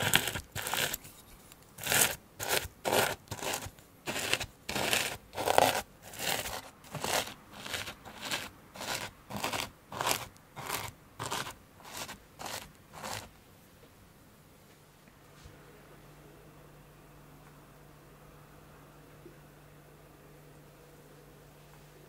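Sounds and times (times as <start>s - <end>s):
spoon scraping biscuit crumbs: 0.0s - 13.4s.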